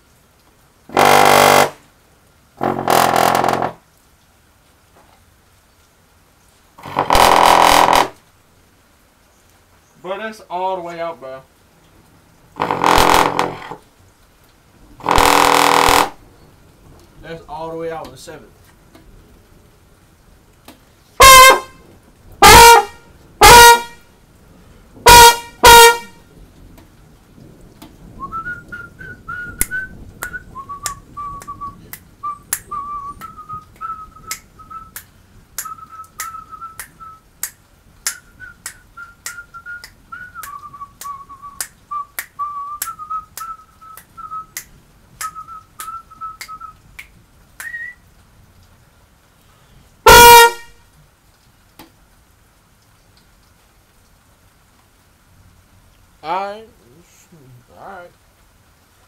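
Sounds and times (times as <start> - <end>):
trombone blasts: 0.9 - 1.8, 6.8 - 8.2, 12.6 - 13.8, 15.0 - 16.2, 21.2 - 24.2, 25.0 - 26.3, 50.0 - 50.9
person whistling a tune: 28.2 - 35.0, 35.6 - 37.2, 38.1 - 44.6, 45.2 - 46.8, 47.6 - 48.0.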